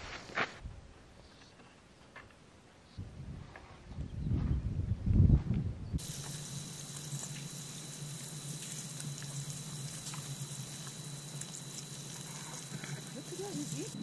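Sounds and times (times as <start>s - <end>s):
mudflat crackling and fizzing: 6.0s - 14.0s
steady hiss: 6.0s - 14.0s
thin high whine: 6.0s - 14.0s.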